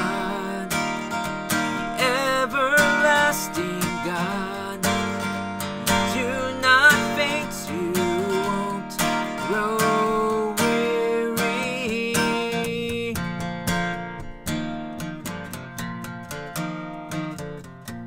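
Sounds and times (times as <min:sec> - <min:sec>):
acoustic guitar strummed: 0:00.0 - 0:18.0.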